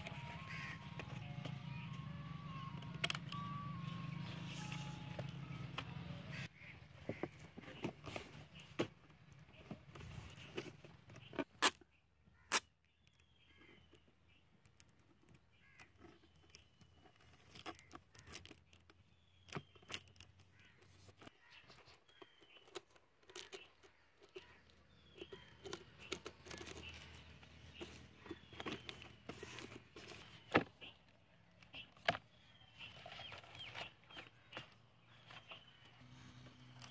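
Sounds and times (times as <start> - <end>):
cardboard box handled: 25.2 - 31.0.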